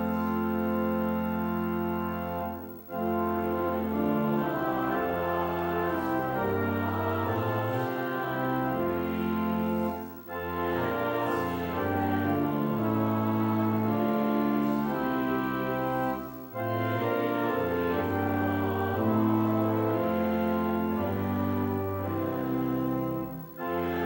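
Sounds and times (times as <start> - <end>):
church organ chords: 0.0 - 24.0.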